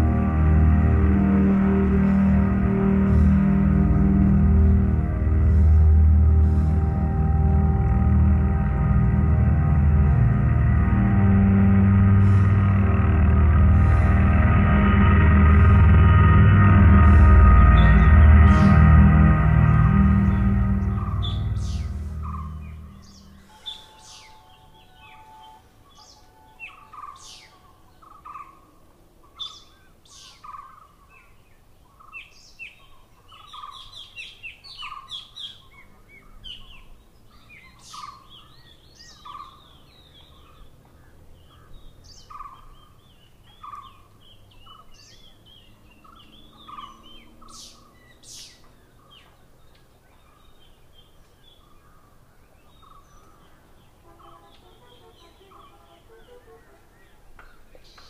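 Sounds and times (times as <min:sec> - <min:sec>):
music: 0:00.0 - 0:27.0, 0:53.9 - 0:57.2
low repeated bird note: 0:00.0 - 0:28.3, 0:52.7 - 0:57.3.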